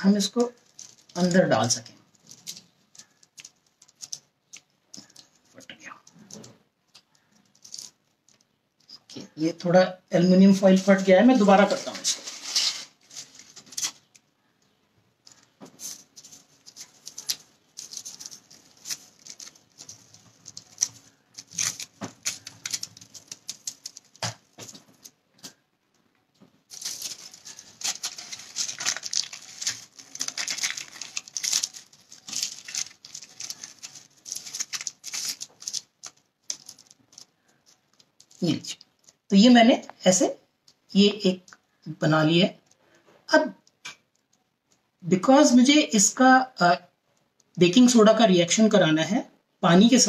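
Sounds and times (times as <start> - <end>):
aluminium foil crinkling: 0.0 - 9.0, 10.8 - 25.6, 26.6 - 39.3.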